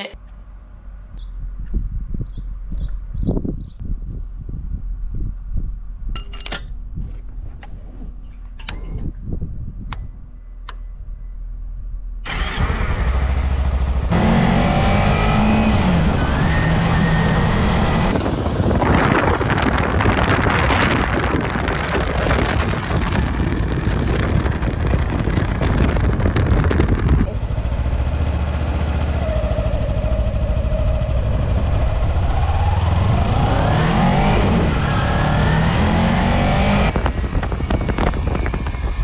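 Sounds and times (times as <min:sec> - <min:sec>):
wind rush while riding: 0:01.3 - 0:11.1, 0:12.3 - 0:39.0
motorcycle engine revving: 0:12.3 - 0:39.0.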